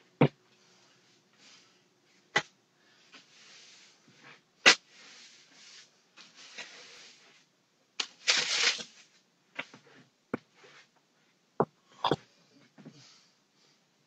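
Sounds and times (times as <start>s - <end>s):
broom sweeping floor: 0.6s - 11.4s.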